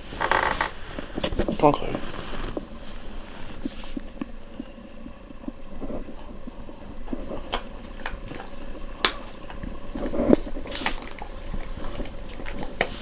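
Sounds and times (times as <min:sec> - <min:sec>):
dog sniffing: 0:00.7 - 0:04.2, 0:10.0 - 0:13.0
dog crunching biscuit: 0:06.8 - 0:13.0.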